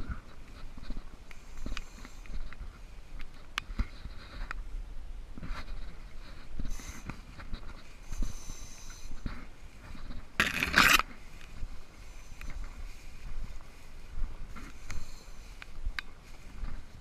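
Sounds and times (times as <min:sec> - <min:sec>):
grass stem scraping camera: 0:00.0 - 0:04.6, 0:05.4 - 0:13.9
crackles: 0:00.0 - 0:04.7, 0:05.3 - 0:17.0
grass rustling underfoot: 0:00.0 - 0:17.0.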